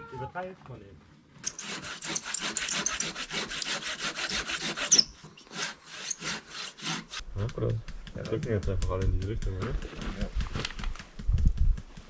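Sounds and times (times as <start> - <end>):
hand saw cutting wood: 1.4 - 7.2.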